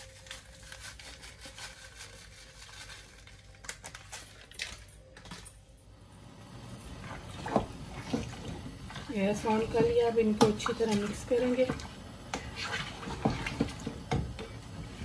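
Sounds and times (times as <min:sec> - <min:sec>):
foil packet crinkling: 0:00.0 - 0:05.5.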